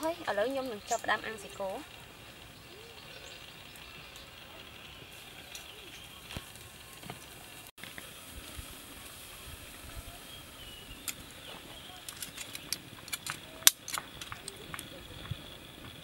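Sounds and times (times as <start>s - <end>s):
meat sizzling on grill: 0.0s - 16.0s
wood fire crackling: 0.0s - 16.0s
sharp clicks: 12.0s - 16.0s.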